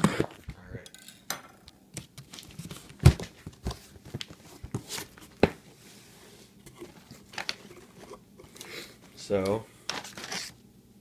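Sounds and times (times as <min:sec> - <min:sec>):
cardboard and paper rustling: 0:02.0 - 0:05.6, 0:06.7 - 0:08.2, 0:09.9 - 0:10.6.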